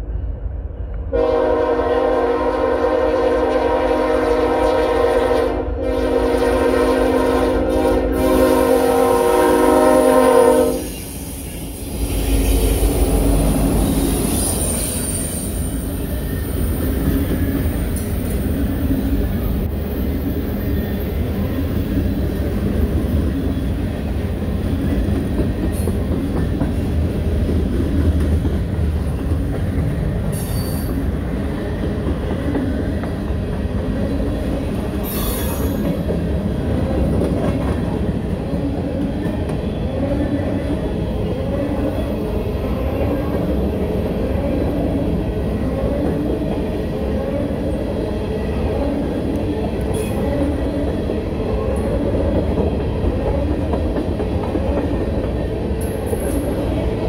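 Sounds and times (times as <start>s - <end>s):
locomotive air horn: 1.1s - 11.0s
train wheel clatter: 14.1s - 34.0s.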